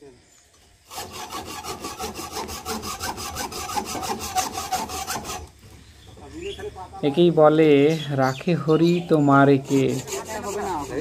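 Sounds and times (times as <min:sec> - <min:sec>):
handsaw cutting wood: 0:00.8 - 0:05.5, 0:09.5 - 0:11.0.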